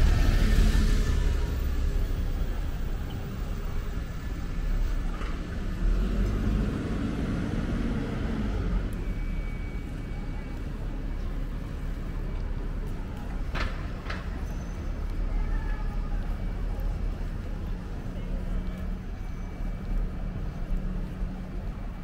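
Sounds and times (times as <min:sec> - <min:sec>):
city road noise hum: 0:00.0 - 0:22.0
vehicle engine passing: 0:05.6 - 0:09.0.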